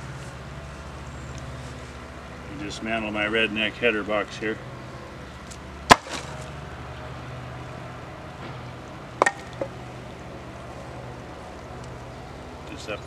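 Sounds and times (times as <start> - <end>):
sharp knocks on wood: 9.2 - 9.8.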